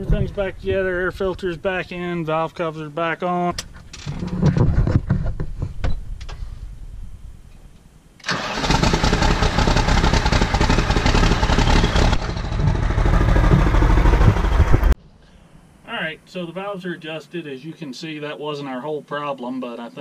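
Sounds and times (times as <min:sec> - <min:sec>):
starter motor cranking: 0:08.2 - 0:15.0
diesel engine clattering: 0:08.3 - 0:15.0.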